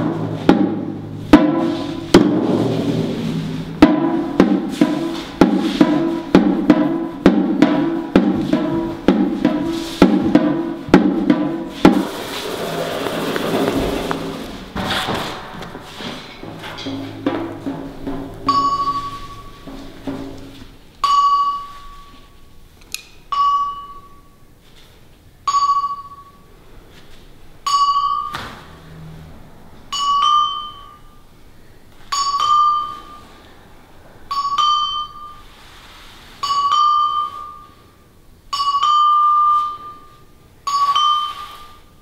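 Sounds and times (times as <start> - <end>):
bell-like ringing note: 18.4 - 19.9, 29.9 - 31.2, 32.1 - 33.3, 34.3 - 35.5, 36.4 - 37.8, 38.5 - 41.8.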